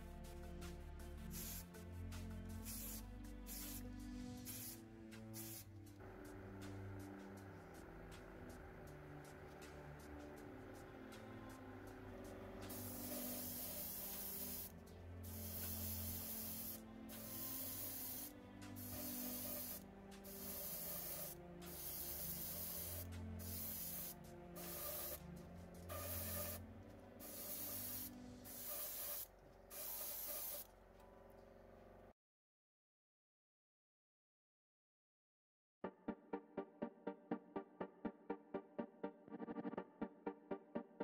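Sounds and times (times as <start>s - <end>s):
spray paint hissing bursts: 1.3s - 1.7s, 2.5s - 5.9s, 12.6s - 26.6s, 27.2s - 30.7s.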